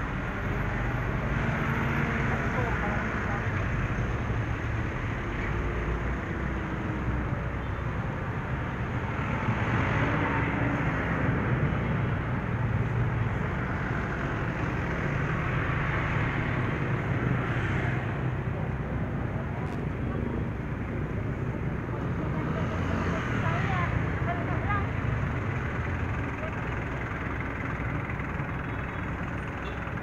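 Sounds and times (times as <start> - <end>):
din of engines: 0.0 - 30.0
motorcycles passing: 12.5 - 30.0.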